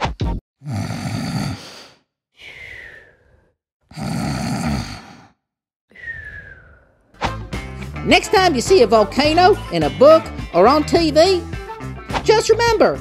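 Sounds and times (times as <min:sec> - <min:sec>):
cartoon snoring with whistle: 0:00.6 - 0:01.9, 0:02.5 - 0:07.1.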